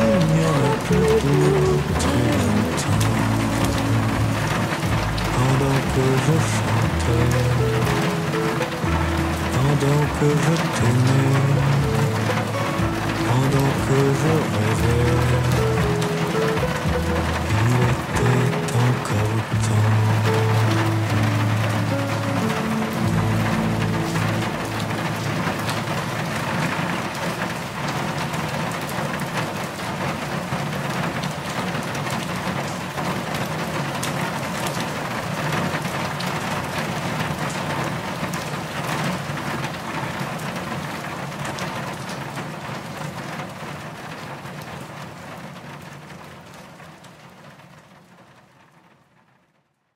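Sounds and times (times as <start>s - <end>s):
raindrops striking sharply: 0.0s - 49.8s
steady rain: 0.0s - 49.9s.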